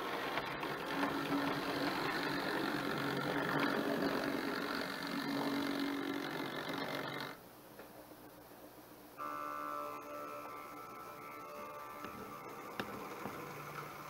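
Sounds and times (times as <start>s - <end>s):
model train motor humming: 0.0s - 7.4s, 9.2s - 14.0s
wheels rumbling on rail: 0.0s - 7.4s
background music: 9.6s - 14.0s.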